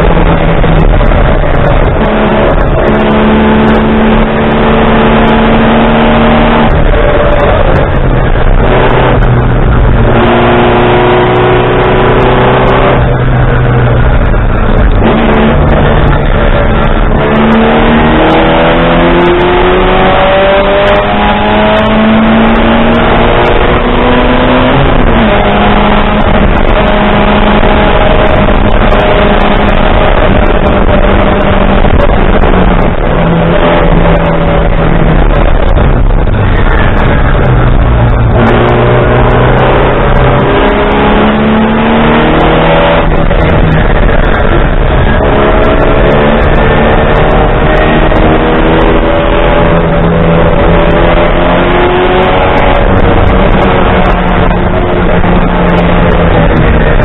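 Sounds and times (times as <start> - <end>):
race car engine revving: 0.0 - 57.0
wind and road noise: 0.0 - 57.0.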